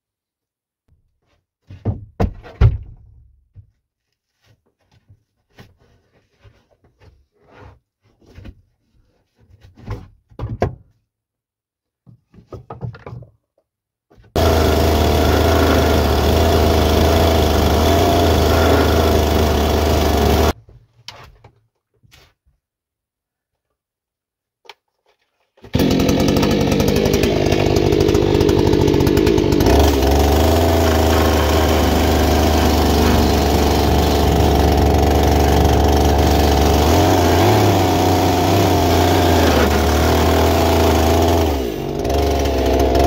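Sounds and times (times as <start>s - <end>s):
boards knocking and clattering: 1.6s - 3.8s, 12.1s - 13.4s
power tool running: 14.4s - 20.6s, 25.7s - 43.0s.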